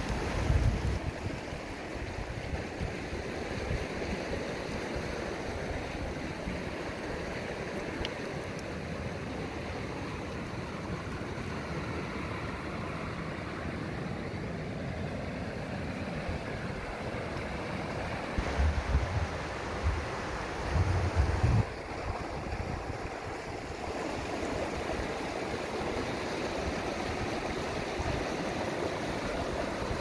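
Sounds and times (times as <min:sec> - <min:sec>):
stream rushing over rocks: 0:00.0 - 0:30.0
low rumble on microphone: 0:18.4 - 0:21.8.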